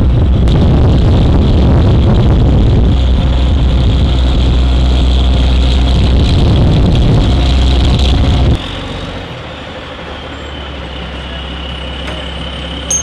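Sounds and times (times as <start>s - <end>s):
wind on microphone: 0.0s - 8.6s
diesel truck engine droning: 0.0s - 13.0s.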